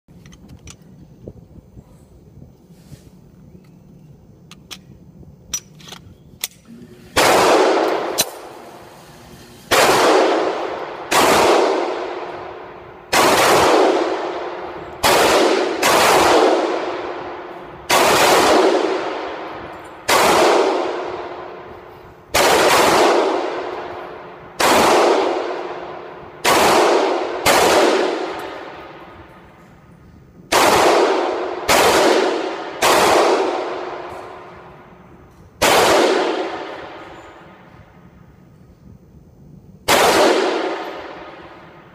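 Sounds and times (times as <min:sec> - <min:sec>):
pistol shots echoing: 0:07.2 - 0:08.9, 0:09.7 - 0:29.6, 0:30.5 - 0:35.0, 0:35.6 - 0:37.6, 0:39.9 - 0:41.9.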